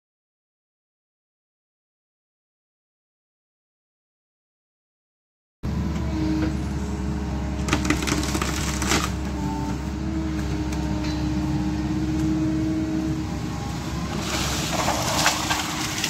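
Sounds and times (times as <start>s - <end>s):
excavator diesel engine whine: 5.6s - 16.0s
wood cracking and splintering: 7.6s - 9.3s, 14.1s - 16.0s.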